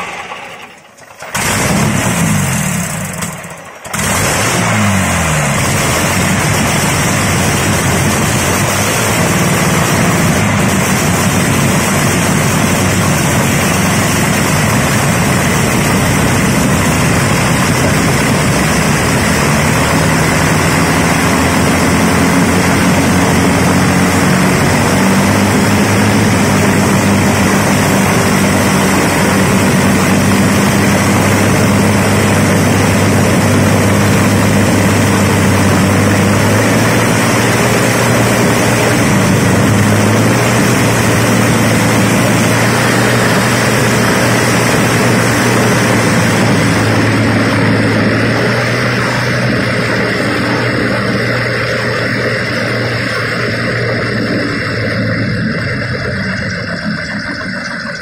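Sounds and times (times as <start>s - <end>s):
aero engine droning: 0.0s - 58.0s.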